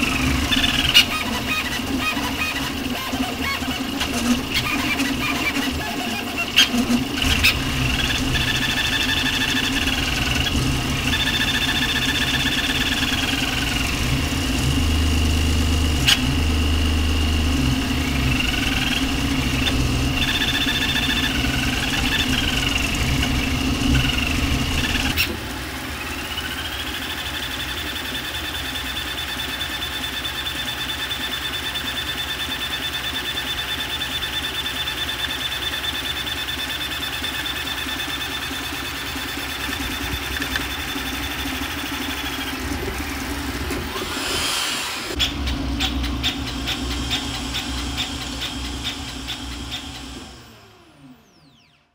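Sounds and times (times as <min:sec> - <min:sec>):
printer rattling: 0:00.0 - 0:25.3
printer whirring: 0:00.0 - 0:51.4
high whine: 0:00.0 - 0:51.9.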